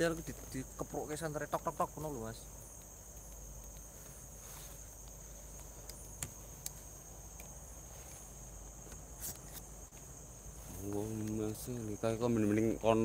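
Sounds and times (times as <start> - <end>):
night insects chirring: 0.0 - 13.0
faint sharp clicks: 5.0 - 7.6.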